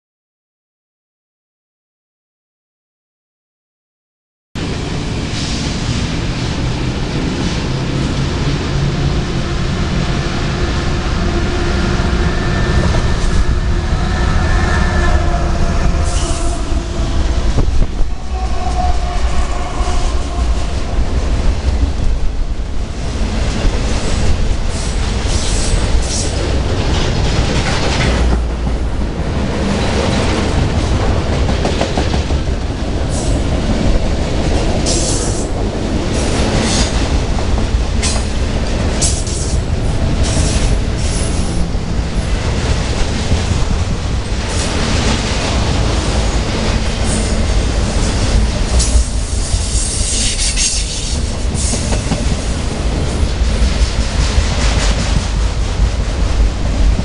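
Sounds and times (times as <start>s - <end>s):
diesel locomotive engines droning: 4.6s - 57.0s
train cars rumbling: 4.6s - 57.0s.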